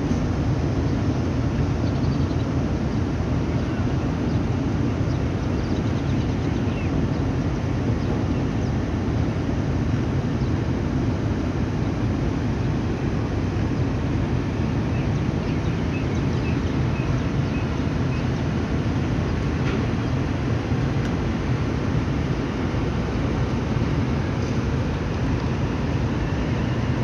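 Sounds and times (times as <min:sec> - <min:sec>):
train wheels rumbling on track: 0:00.0 - 0:27.0
rushing air: 0:16.7 - 0:27.0.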